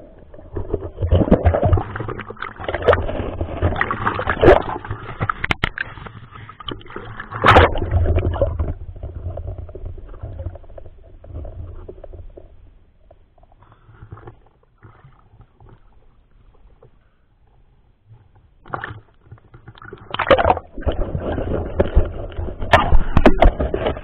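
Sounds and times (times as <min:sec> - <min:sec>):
water sloshing and splashing: 0:00.0 - 0:17.0, 0:18.1 - 0:24.0.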